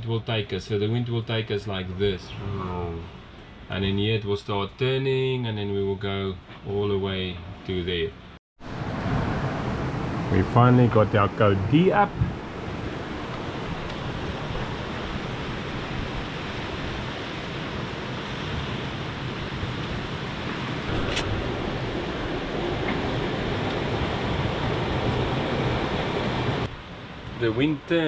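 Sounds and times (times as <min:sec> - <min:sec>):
wind and sea rushing: 0:08.6 - 0:28.0.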